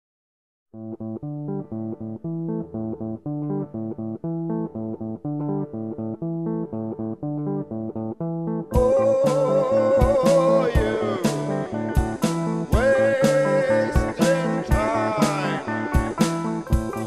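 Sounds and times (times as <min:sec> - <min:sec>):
plucked guitar and bass riff: 0:00.8 - 0:17.0
full band playing: 0:08.8 - 0:17.0.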